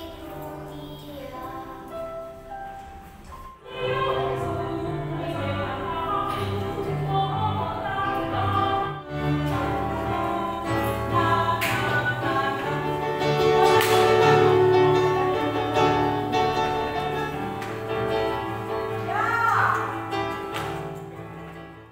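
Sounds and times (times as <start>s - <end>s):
steady musical accompaniment: 0.0s - 21.9s
choir singing held notes: 3.3s - 20.2s.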